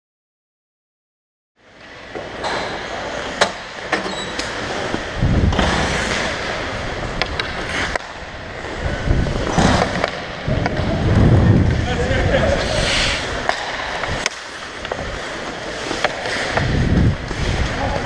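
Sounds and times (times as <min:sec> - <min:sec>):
skate blades scraping ice: 0:04.5 - 0:18.0
wind rumble on microphone: 0:05.1 - 0:05.8, 0:08.2 - 0:14.2, 0:16.5 - 0:18.0
hockey sticks and puck clicking: 0:07.1 - 0:08.8, 0:09.4 - 0:10.9, 0:13.2 - 0:18.0.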